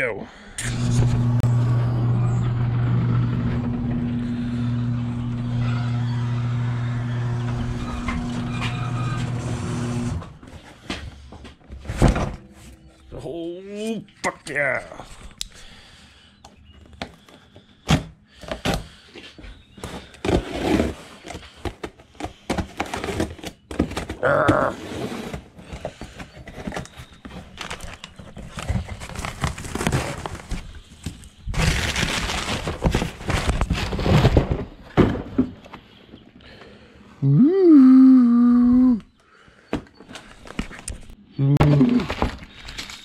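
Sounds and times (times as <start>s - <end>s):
cardboard rustling and scraping: 19.7s - 35.8s
cardboard tearing: 22.6s - 34.7s.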